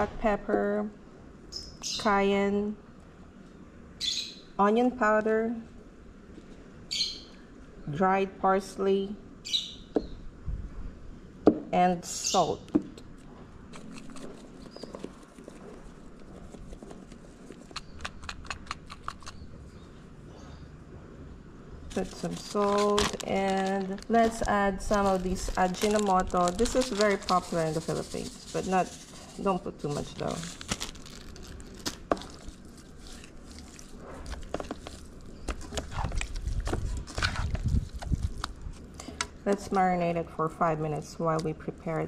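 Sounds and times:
hands squelching wet fish: 30.6 - 36.6.

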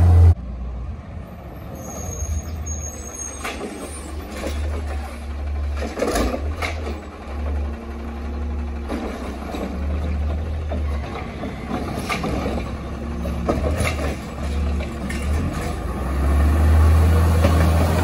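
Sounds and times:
garbage truck engine running: 4.2 - 18.0.

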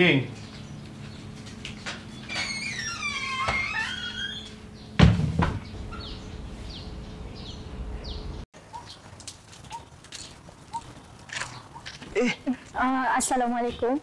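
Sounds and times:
wooden doors thudding shut: 1.9 - 6.2.

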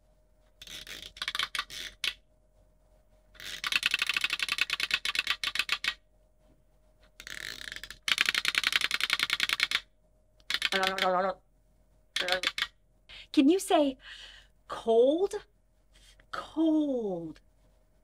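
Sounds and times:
person chattering teeth: 10.5 - 11.2, 12.2 - 12.7.

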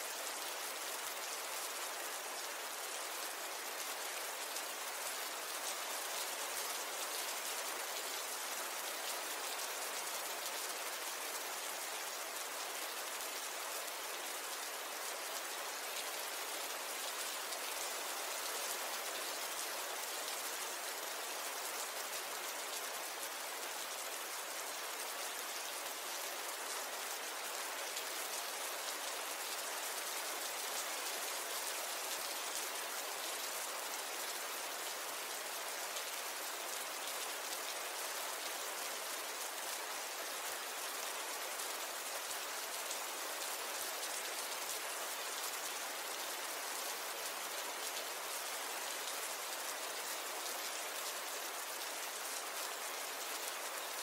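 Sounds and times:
steady rain hissing: 0.0 - 54.0.

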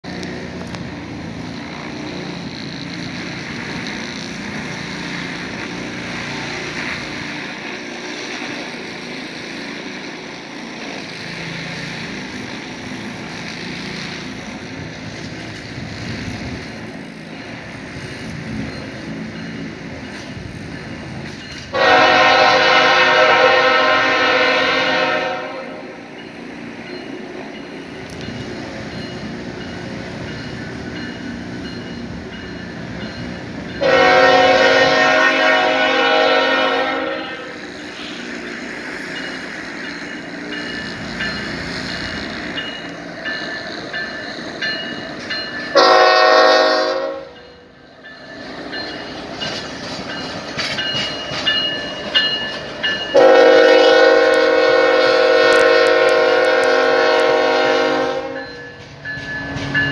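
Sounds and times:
rumble of approaching train: 0.0 - 59.9
locomotive air horn blast: 21.7 - 26.0, 33.8 - 38.2, 45.7 - 47.4, 53.1 - 58.4.

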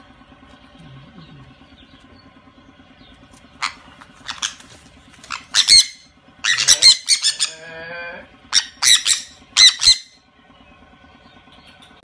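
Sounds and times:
parrots squawking: 3.6 - 10.2.

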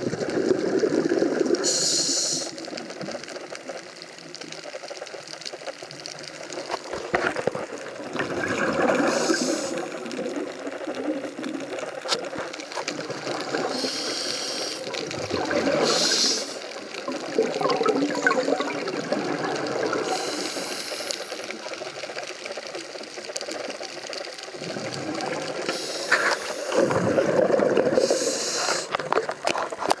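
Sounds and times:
bubbling exhalations: 0.0 - 1.8, 6.9 - 11.7, 12.3 - 21.1, 24.6 - 30.0
watery background: 0.0 - 30.0
diver inhaling hiss: 1.6 - 2.7, 9.0 - 10.0, 13.6 - 15.0, 15.8 - 16.8, 20.0 - 21.6, 25.6 - 27.2, 27.9 - 29.0.

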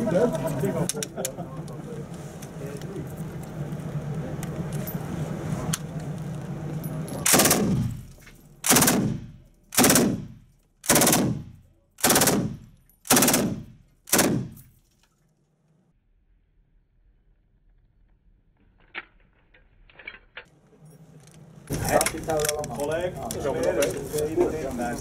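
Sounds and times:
machine gun bursts: 7.2 - 8.0, 8.6 - 11.4, 12.0 - 14.6.

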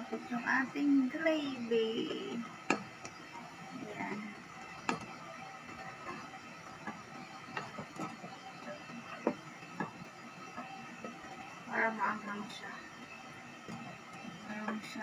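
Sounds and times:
gravy simmering and popping: 4.2 - 11.6.

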